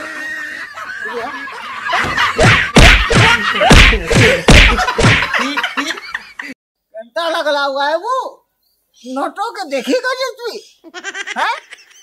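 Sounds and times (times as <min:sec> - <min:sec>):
loud thuds and smacks: 0:02.0 - 0:05.3.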